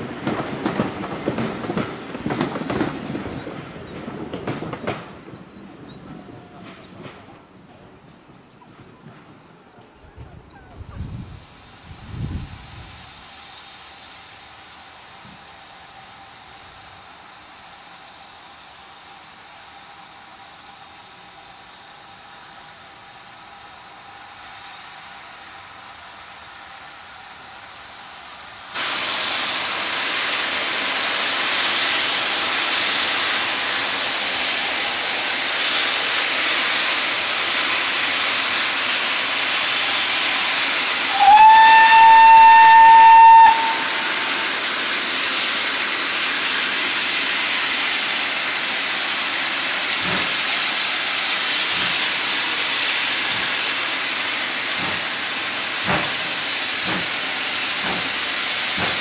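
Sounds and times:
steam hissing: 0:00.0 - 0:59.0
steam locomotive whistle: 0:41.0 - 0:44.5.

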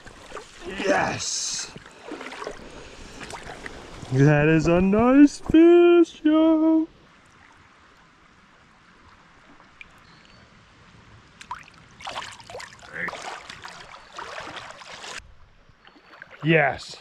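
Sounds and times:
fish splashing in water: 0:01.9 - 0:04.1, 0:11.4 - 0:15.2.

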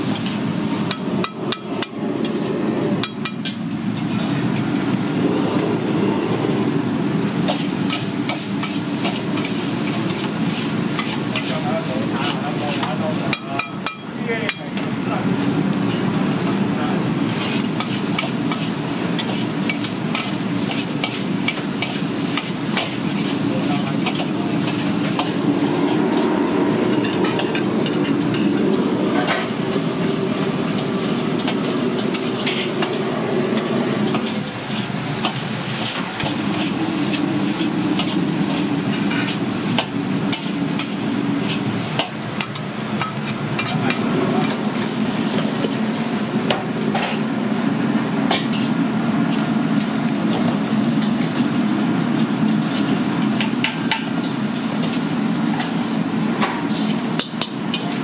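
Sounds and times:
food sizzling: 0:00.0 - 0:58.0
ladle scraping a wok: 0:07.2 - 0:12.9, 0:17.2 - 0:46.2.

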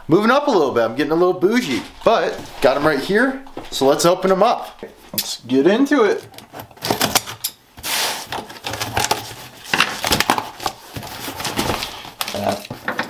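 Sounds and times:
cardboard scraping and rustling: 0:06.4 - 0:13.0.

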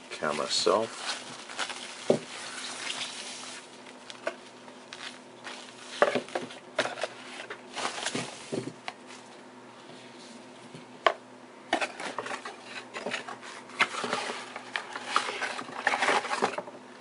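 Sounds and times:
plastic bag rustling: 0:00.1 - 0:09.3.

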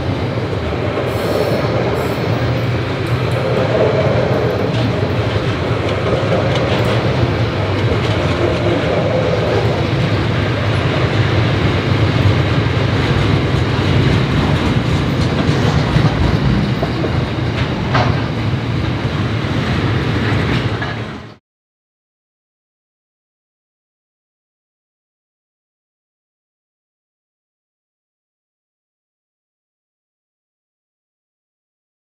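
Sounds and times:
freight train wheels rumbling: 0:00.0 - 0:21.4.

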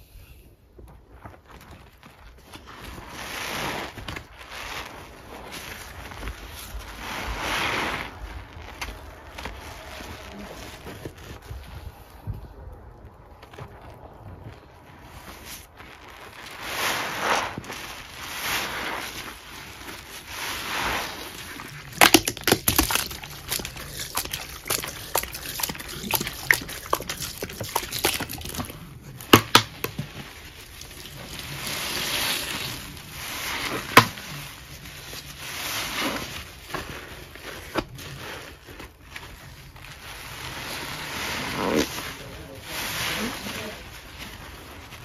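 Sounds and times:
wet paste squelching: 0:02.4 - 0:45.0
sharp pops: 0:21.9 - 0:30.2.

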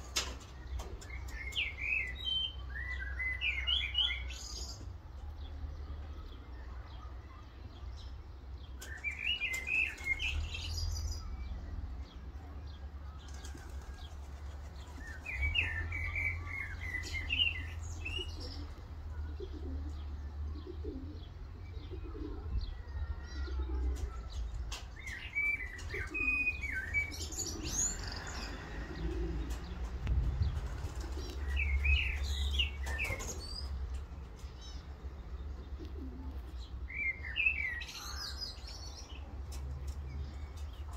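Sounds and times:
pigeons flapping wings: 0:13.2 - 0:15.3, 0:29.5 - 0:31.6
low wind rumble: 0:28.2 - 0:32.0.

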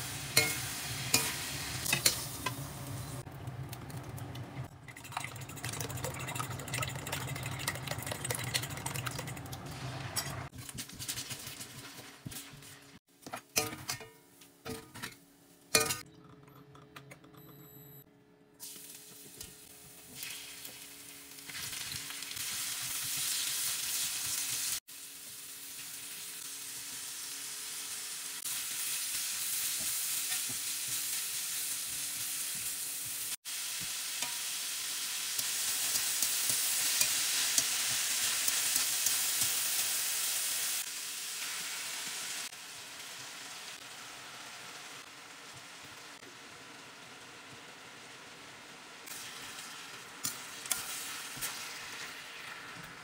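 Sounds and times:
spatula stirring and tossing food: 0:00.0 - 0:02.6, 0:07.0 - 0:15.1, 0:28.4 - 0:40.6
oil sizzling in a wok: 0:00.0 - 0:03.3, 0:09.6 - 0:15.8, 0:18.6 - 0:53.0.

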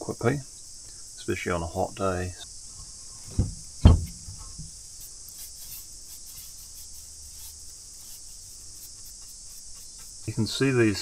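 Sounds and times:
insects chirring: 0:00.0 - 0:11.0
dull thumps: 0:02.7 - 0:05.0.

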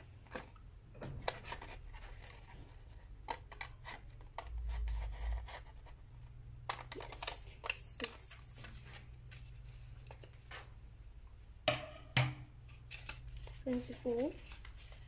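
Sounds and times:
paper rustling: 0:12.7 - 0:15.0
scissors snipping paper: 0:13.0 - 0:14.8.

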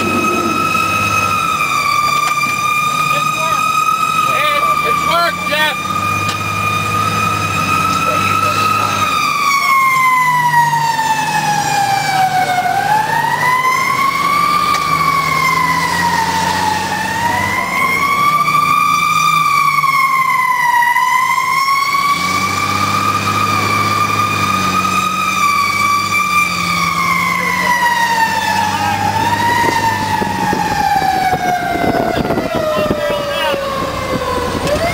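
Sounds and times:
fire engine siren wailing: 0:00.0 - 0:34.9
truck engine running: 0:00.0 - 0:34.9.

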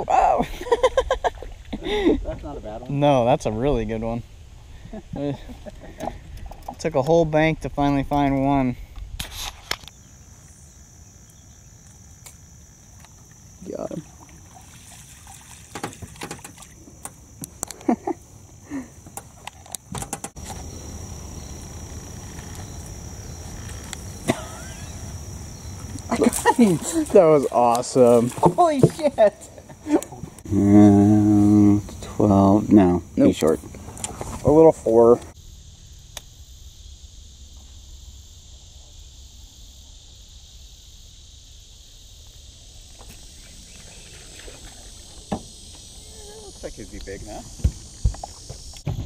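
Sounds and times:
insects buzzing chorus: 0:00.0 - 0:49.0.

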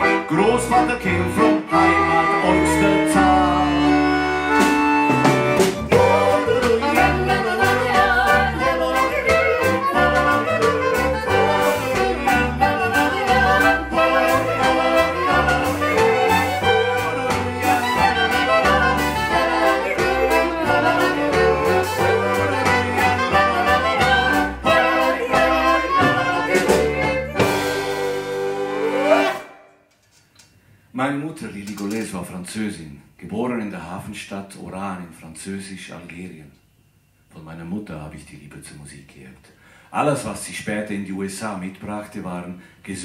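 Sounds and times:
double bass: 0:00.0 - 0:29.4
violin: 0:00.0 - 0:29.6
accordion: 0:00.0 - 0:29.7
clarinet: 0:00.0 - 0:29.9
drum kit beat: 0:03.9 - 0:29.4.

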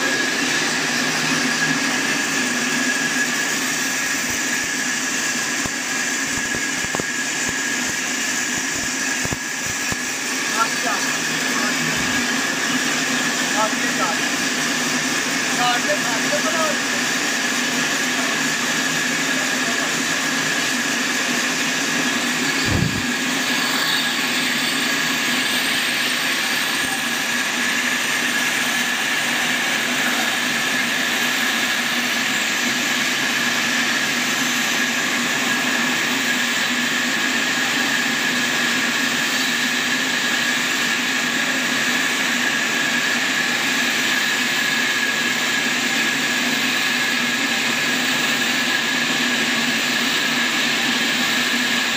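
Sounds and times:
band saw cutting log: 0:00.0 - 0:37.7.

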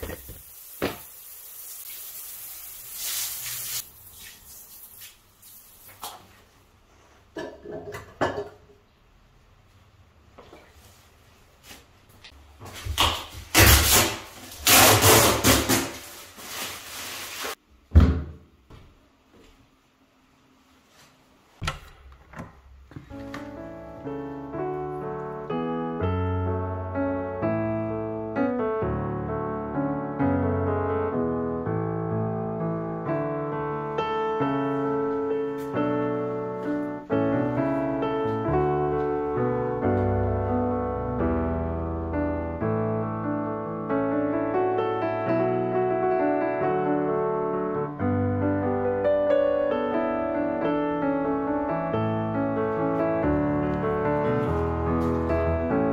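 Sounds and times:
door thud: 0:17.9 - 0:18.5
soft piano music: 0:23.0 - 0:55.9.

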